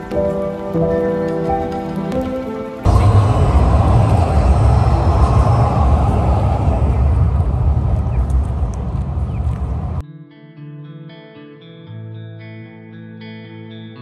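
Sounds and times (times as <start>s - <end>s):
background music: 0.0s - 3.9s
city street noise with low rumble: 2.9s - 10.0s.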